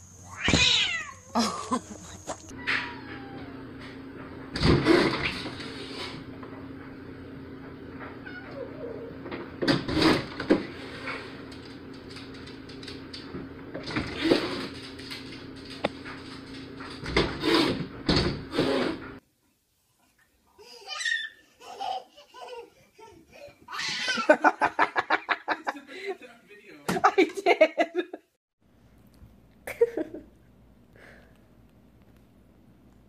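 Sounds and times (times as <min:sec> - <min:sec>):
cat calls: 0:02.3 - 0:03.6.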